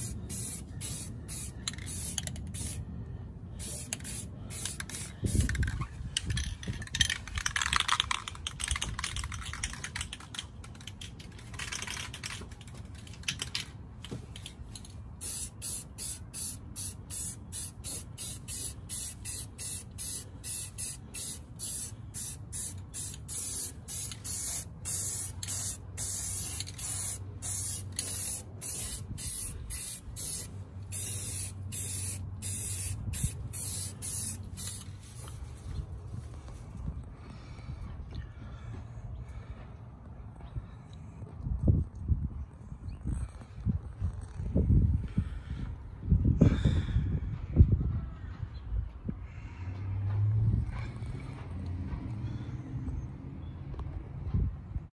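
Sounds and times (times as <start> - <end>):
spray can hissing: 0.0 - 2.8, 3.6 - 5.6, 15.2 - 35.3.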